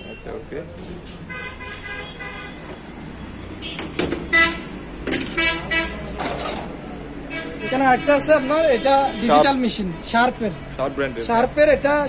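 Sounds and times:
vehicle horns honking: 0:00.0 - 0:00.4, 0:01.2 - 0:06.2, 0:07.2 - 0:11.5
low traffic hum: 0:00.0 - 0:12.0.

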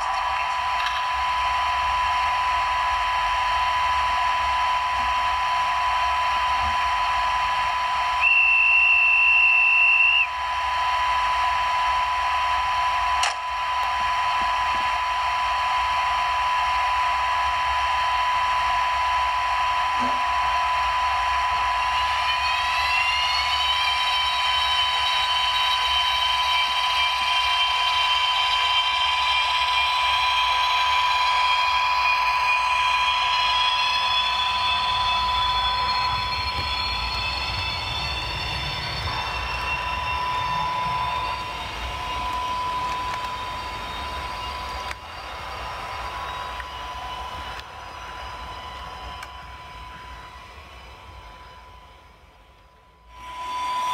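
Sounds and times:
electric hum: 0:00.0 - 0:53.9
electric motor whine rising: 0:00.0 - 0:53.9
high steady tone: 0:00.0 - 0:53.9
click: 0:13.2 - 0:13.9, 0:42.3 - 0:43.4, 0:44.8 - 0:45.0, 0:48.8 - 0:49.4.

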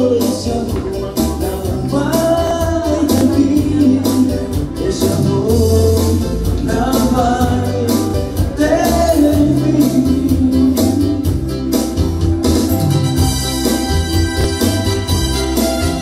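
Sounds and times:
man singing into a microphone: 0:00.0 - 0:11.6
amplified backing music with beat: 0:00.0 - 0:16.0.

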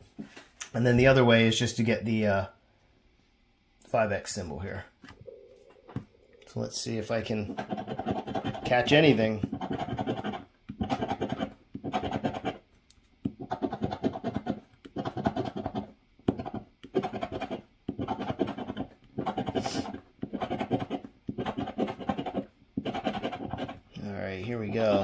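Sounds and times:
coin scraping scratch card: 0:07.4 - 0:12.6, 0:13.4 - 0:23.8.

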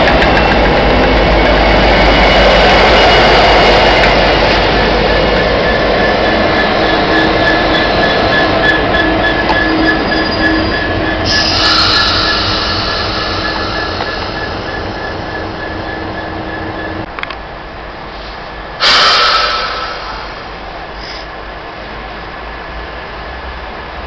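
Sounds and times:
diesel locomotives running past: 0:00.0 - 0:24.0
wheel squeal: 0:05.6 - 0:17.1
sudden loud rush of noise: 0:11.2 - 0:15.6, 0:18.0 - 0:21.5.

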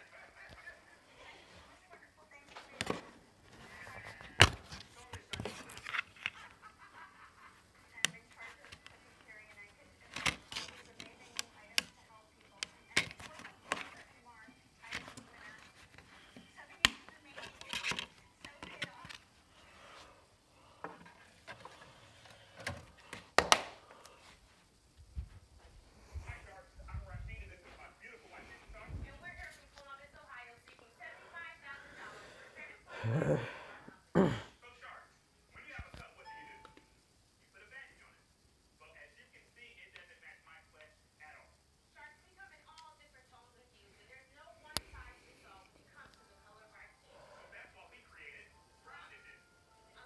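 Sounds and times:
plastic case snapping: 0:22.6 - 0:23.8.

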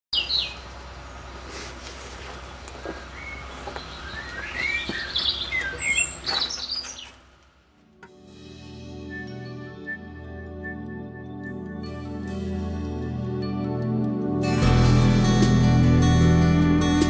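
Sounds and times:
birds chirping and singing: 0:00.1 - 0:00.8, 0:02.3 - 0:07.2
gentle music: 0:07.8 - 0:17.0.

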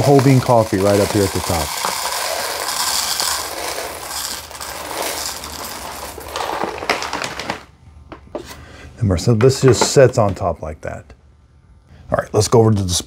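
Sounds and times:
coffee beans pouring rattle: 0:00.0 - 0:07.6.

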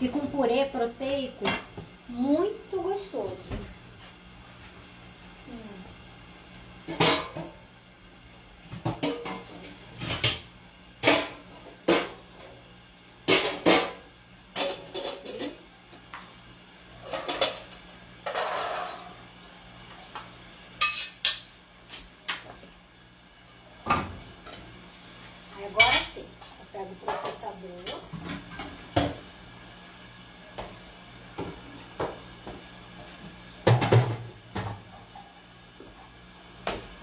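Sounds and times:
metal pots clanking in sink: 0:06.9 - 0:07.6, 0:08.8 - 0:12.2, 0:13.3 - 0:15.6, 0:17.0 - 0:19.2, 0:33.6 - 0:35.2.

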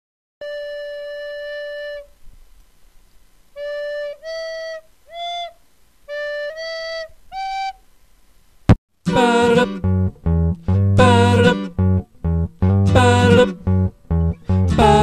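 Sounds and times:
flute-like melody: 0:00.4 - 0:02.2, 0:03.6 - 0:07.8.

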